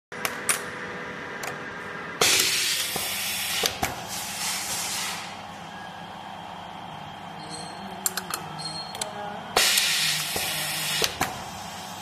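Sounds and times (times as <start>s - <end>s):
machine hum: 0.1s - 12.0s
hiss of air: 2.3s - 5.4s, 9.6s - 12.0s.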